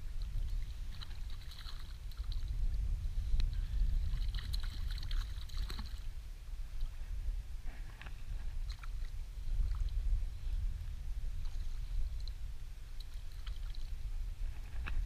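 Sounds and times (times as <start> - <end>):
water lapping against boat: 0.0 - 2.5, 4.0 - 6.2
wind rumble on microphone: 0.0 - 15.0.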